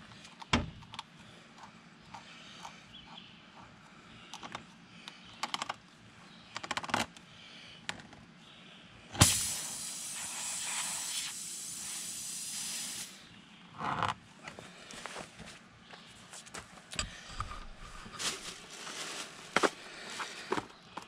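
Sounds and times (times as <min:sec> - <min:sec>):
air hissing from tire: 0:09.2 - 0:13.3.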